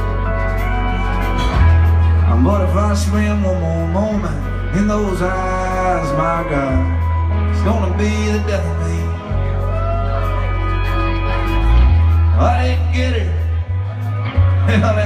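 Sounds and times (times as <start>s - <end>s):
drums and cymbals: 0.0s - 2.4s
bass notes: 0.0s - 15.0s
electric guitar lead with bending notes: 0.0s - 15.0s.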